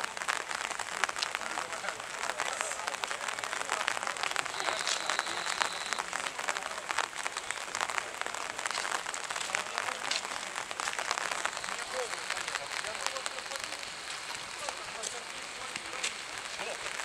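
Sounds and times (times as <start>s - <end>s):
rain on umbrellas: 0.0s - 17.0s
faint high tone: 4.5s - 6.0s.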